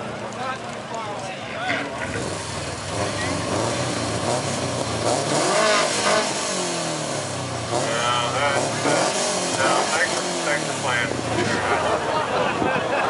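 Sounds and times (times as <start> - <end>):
crowd chatter: 0.0 - 13.0
car engine revving: 1.8 - 12.2.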